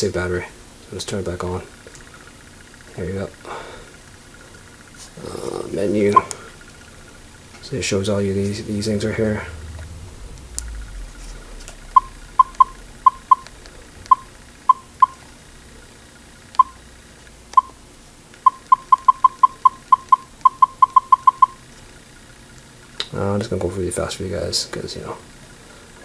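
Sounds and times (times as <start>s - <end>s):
camera button beeps: 16.6s - 16.8s, 18.5s - 21.6s.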